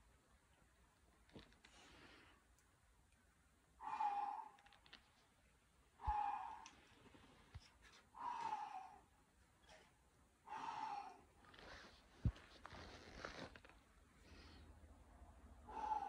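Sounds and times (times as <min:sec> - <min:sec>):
person exhaling with effort: 0:15.6 - 0:16.0.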